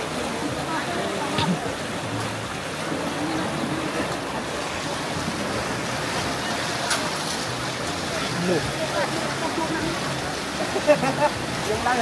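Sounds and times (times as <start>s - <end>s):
water rushing: 0.0s - 12.0s.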